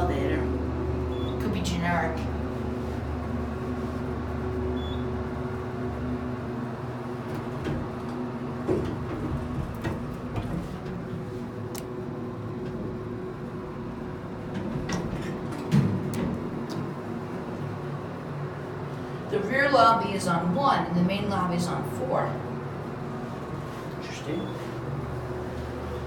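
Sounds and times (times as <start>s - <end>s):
elevator doors sliding open: 0.0s - 3.4s, 4.6s - 18.8s, 22.8s - 26.0s
low elevator hum: 0.0s - 26.0s.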